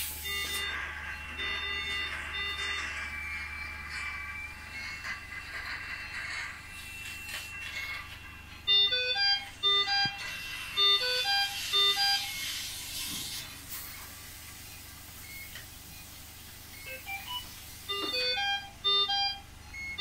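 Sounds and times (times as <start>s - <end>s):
steady hiss: 10.3s - 18.0s.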